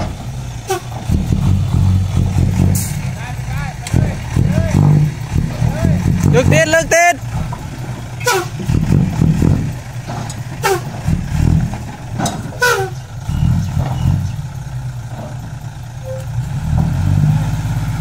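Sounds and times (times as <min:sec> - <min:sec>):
diesel engine running: 0:00.0 - 0:18.0
short falling squeaks: 0:12.2 - 0:14.4.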